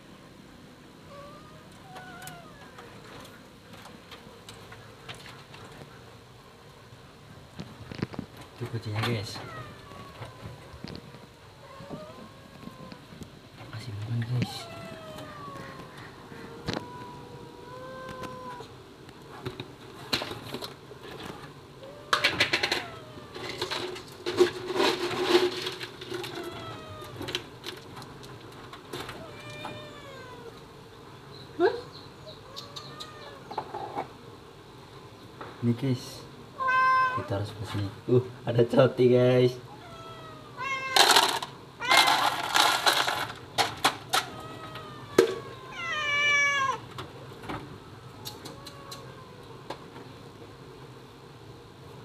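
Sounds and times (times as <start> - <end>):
cats meowing: 1.0 - 3.4, 9.0 - 13.3, 14.1 - 18.8, 21.2 - 24.0, 26.1 - 27.5, 29.0 - 30.7, 32.2 - 34.0, 36.6 - 37.6, 39.6 - 43.2, 44.0 - 46.9, 48.2 - 49.7
rustling and clatter: 1.7 - 6.1, 7.5 - 17.2, 18.0 - 29.9, 40.8 - 45.5.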